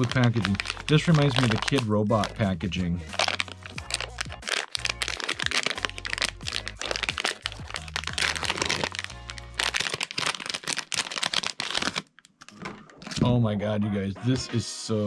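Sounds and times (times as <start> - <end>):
background music with bass: 0.0 - 9.8
foil bag crinkling: 0.0 - 13.2.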